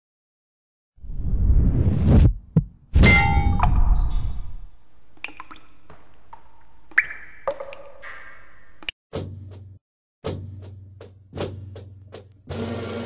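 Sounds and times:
loud hit with metallic chime: 0:03.0 - 0:04.4.

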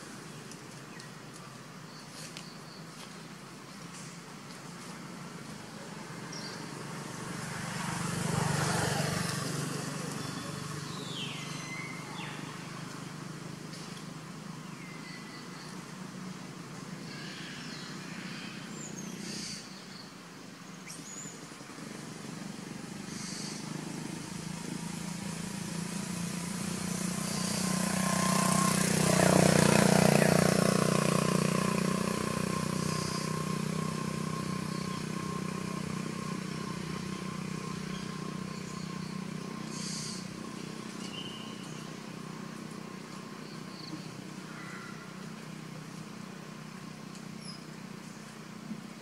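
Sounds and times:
motor vehicle passing by: 0:03.0 - 0:19.6, 0:21.6 - 0:49.0.

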